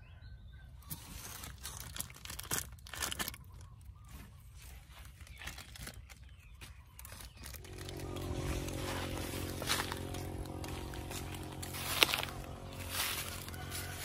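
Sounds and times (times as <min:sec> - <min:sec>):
plastic bags crinkling: 0:01.0 - 0:03.9, 0:05.0 - 0:08.0.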